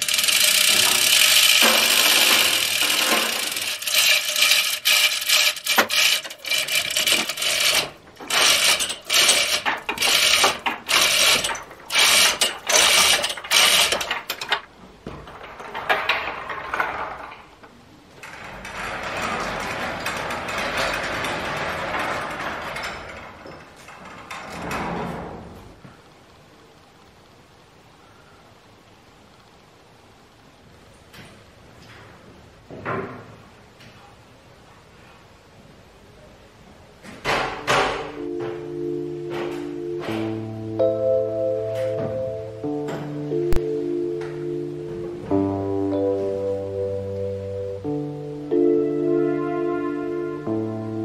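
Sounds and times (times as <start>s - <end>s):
chains clattering and ratcheting: 0.0s - 14.6s.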